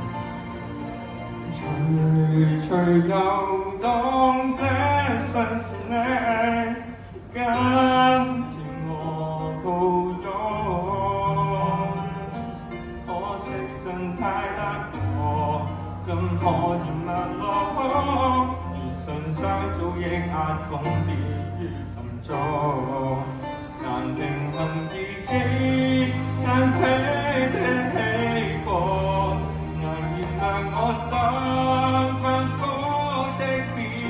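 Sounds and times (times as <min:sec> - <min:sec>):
accompaniment with bass notes: 0:00.0 - 0:34.0
man singing pop song: 0:01.5 - 0:34.0.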